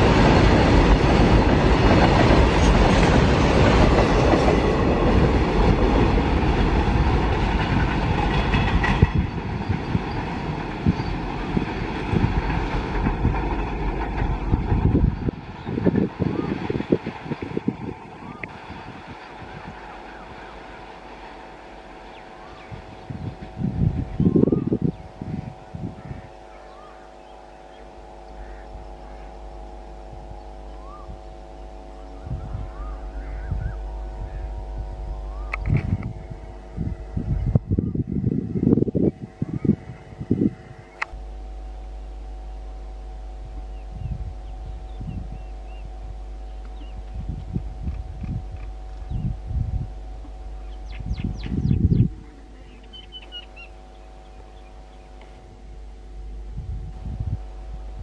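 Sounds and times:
freight train wheels clattering: 0:00.0 - 0:17.6
train rumble with knocks: 0:00.0 - 0:41.6, 0:43.4 - 0:58.0
steady hum: 0:00.0 - 0:58.0.

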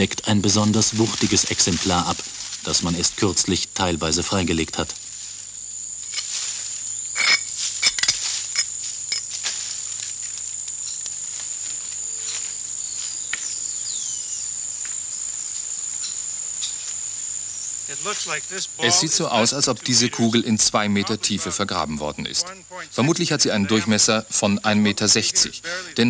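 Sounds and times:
high insect drone: 0:00.0 - 0:26.0
dry leaves crackling and rustling: 0:00.3 - 0:03.2, 0:04.8 - 0:13.3.

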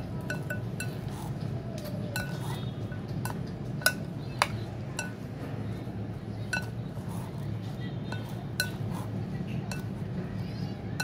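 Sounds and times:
spoon and chopsticks clinking bowl: 0:00.1 - 0:01.1, 0:02.1 - 0:04.2, 0:04.9 - 0:05.2, 0:06.4 - 0:06.8, 0:08.1 - 0:09.0, 0:09.6 - 0:10.0.

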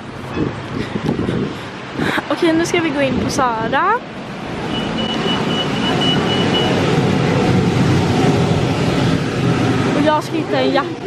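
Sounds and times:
background noise rush: 0:00.0 - 0:11.0
security gate beeping: 0:04.7 - 0:06.8.

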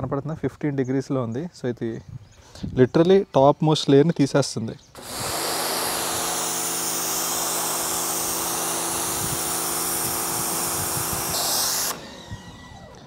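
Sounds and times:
pressure washer spraying concrete: 0:05.0 - 0:12.4
pump motor hum: 0:05.0 - 0:13.0.

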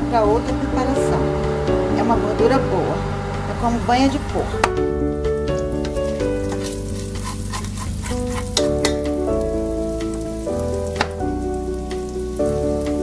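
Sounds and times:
bacon frying and crackling: 0:05.8 - 0:13.0.

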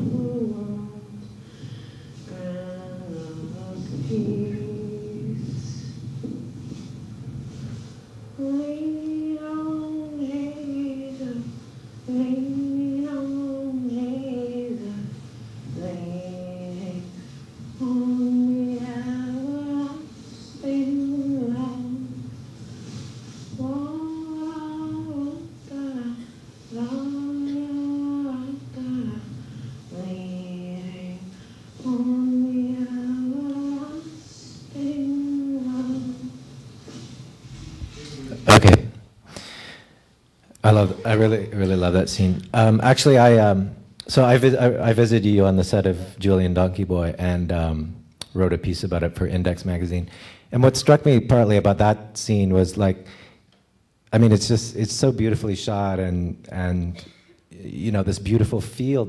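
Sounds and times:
woman singing slowly: 0:00.0 - 0:01.4, 0:02.2 - 0:06.0, 0:08.4 - 0:22.4, 0:23.5 - 0:36.6.

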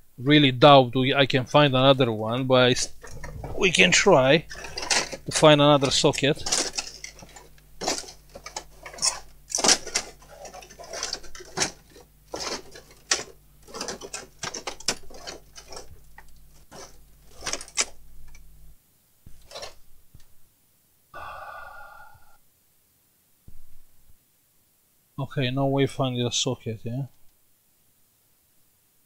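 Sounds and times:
faint low hum: 0:00.0 - 0:29.0
small hard parts clicking and clattering: 0:04.4 - 0:18.4.

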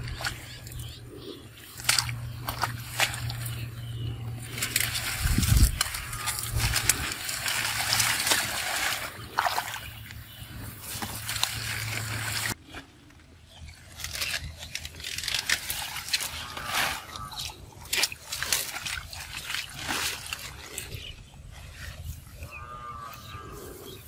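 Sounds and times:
leaves rustling and crackling: 0:01.8 - 0:12.8, 0:13.6 - 0:21.0
hands splashing in water: 0:04.4 - 0:10.0.

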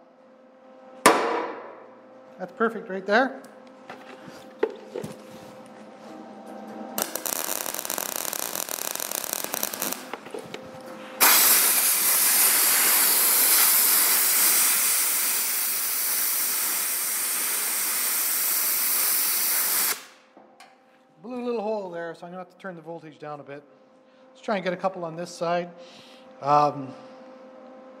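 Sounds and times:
air blow gun hissing: 0:07.0 - 0:10.1, 0:11.2 - 0:20.2
welder crackling sizzle: 0:07.0 - 0:20.2.

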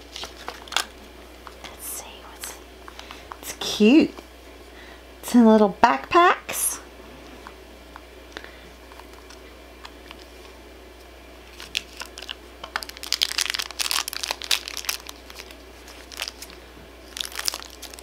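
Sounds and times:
plastic wrapper crinkling: 0:00.0 - 0:01.6, 0:11.4 - 0:18.0.

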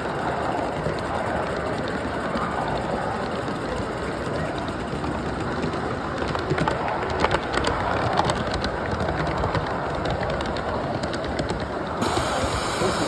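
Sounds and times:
train wheels clicking and ticking: 0:00.0 - 0:13.0
steady steam hiss: 0:12.0 - 0:13.0.

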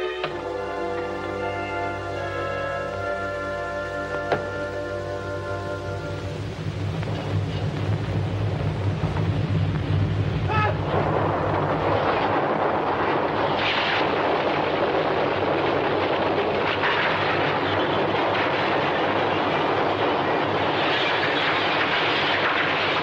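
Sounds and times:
earthquake rumble and roar: 0:05.2 - 0:23.0
loud crash: 0:06.8 - 0:23.0.

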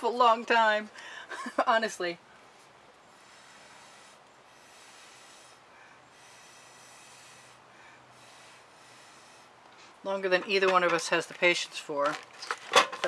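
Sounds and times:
quiet steady hiss: 0:00.0 - 0:13.0
slow breathing: 0:00.9 - 0:01.4, 0:02.2 - 0:10.0.

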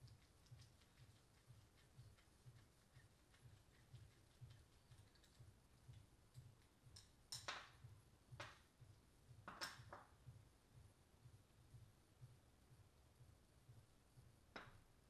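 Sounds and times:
metal parts clicking and tapping: 0:04.0 - 0:05.4, 0:07.0 - 0:07.6.

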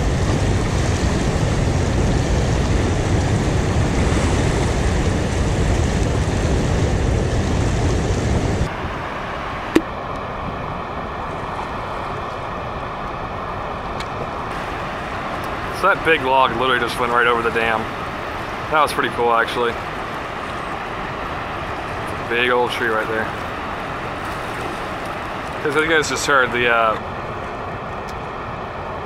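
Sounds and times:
wind on microphone: 0:00.0 - 0:29.0
rushing water below a dam: 0:08.6 - 0:29.0.

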